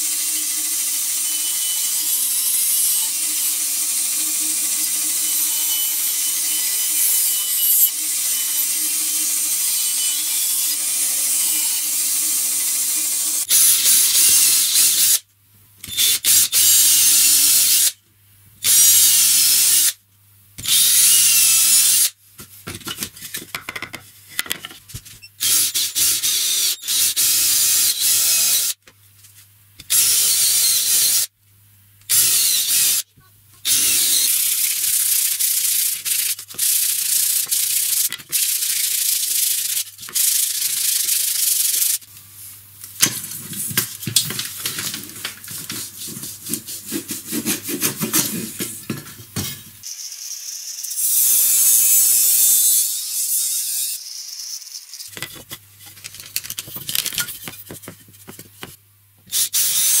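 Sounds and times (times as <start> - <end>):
band saw cutting wood: 0.0 - 15.1, 46.2 - 48.6
electric drill boring wood: 0.0 - 15.1, 33.7 - 38.5.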